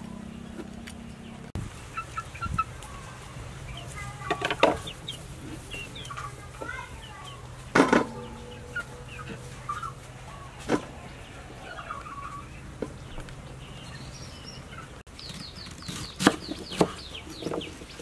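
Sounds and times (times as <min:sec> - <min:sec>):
chickens clucking: 0:00.0 - 0:18.0
high falling bird chirps: 0:04.8 - 0:18.0.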